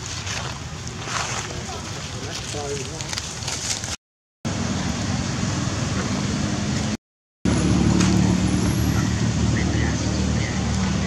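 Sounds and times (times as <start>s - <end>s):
vehicle engine hum with road noise: 4.5s - 11.0s.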